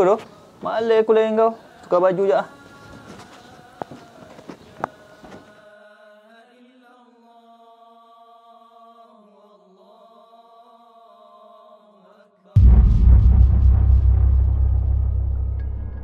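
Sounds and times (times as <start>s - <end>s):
wordless chant-like vocal drone: 0.4s - 16.0s
deep boom: 12.6s - 16.0s.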